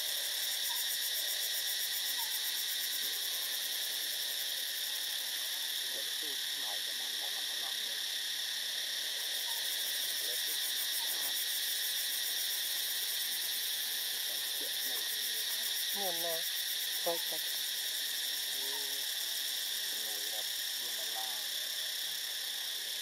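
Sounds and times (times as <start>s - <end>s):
insect chorus drone: 0.0s - 23.0s.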